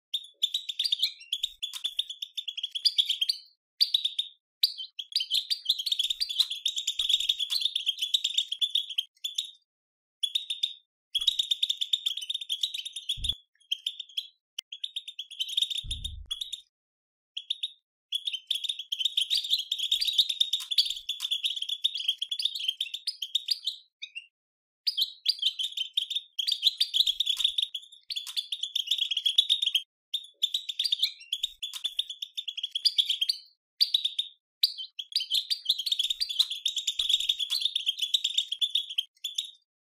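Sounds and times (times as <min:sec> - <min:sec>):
dull low knocks: 0:15.9 - 0:16.4.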